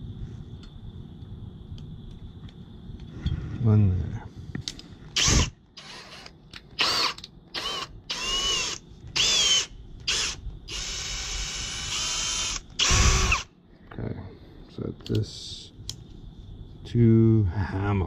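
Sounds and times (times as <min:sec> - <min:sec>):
power drill whining: 0:05.2 - 0:13.5.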